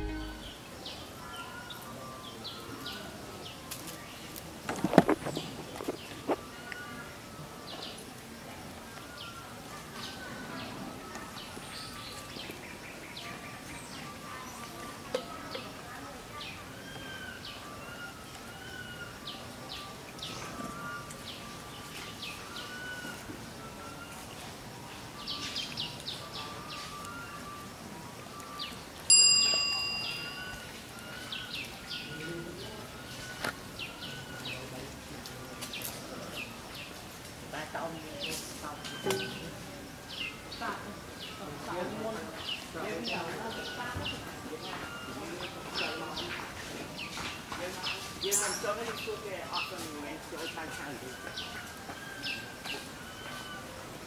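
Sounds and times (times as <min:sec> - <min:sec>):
bright bell-like chime: 0:00.0 - 0:00.6, 0:29.1 - 0:30.8
small birds chirping: 0:00.0 - 0:54.0
thin whistled bird notes: 0:16.4 - 0:35.0, 0:38.2 - 0:46.3, 0:50.4 - 0:53.9.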